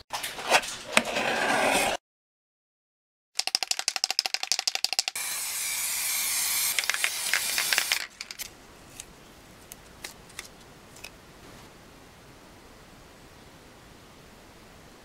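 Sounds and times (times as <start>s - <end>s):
spray can ball rattling: 3.4s - 5.2s, 6.7s - 8.5s
spray can hissing: 6.2s - 8.1s.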